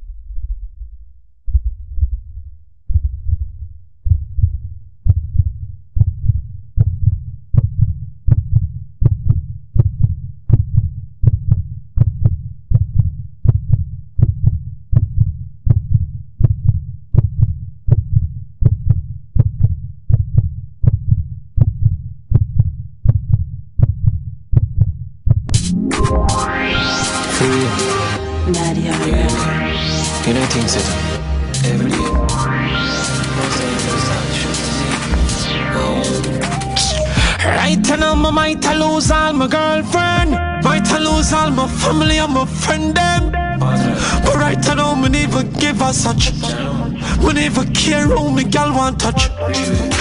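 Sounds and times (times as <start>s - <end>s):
heartbeat thumps: 0.0s - 26.4s, 32.0s - 32.5s, 35.1s - 35.6s, 37.0s - 39.4s, 40.1s - 42.4s, 43.1s - 46.5s, 47.1s - 48.4s, 49.2s - 50.0s.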